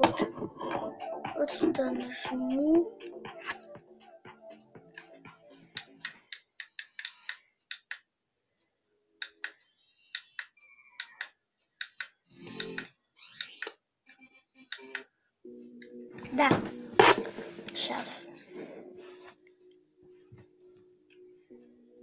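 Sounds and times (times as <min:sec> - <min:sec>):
music from small speaker: 0:00.0 - 0:07.1.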